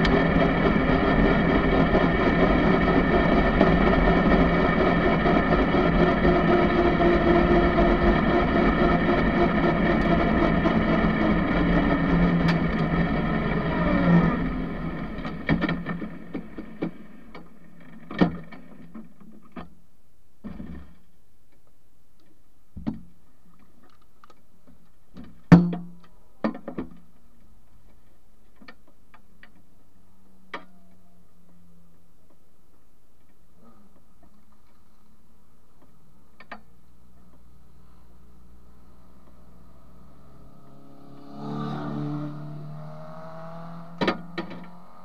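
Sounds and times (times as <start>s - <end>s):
racing car engine slowing: 0.0s - 18.0s, 37.0s - 45.0s
sharp clicks and knocks: 15.0s - 19.8s, 35.8s - 37.5s.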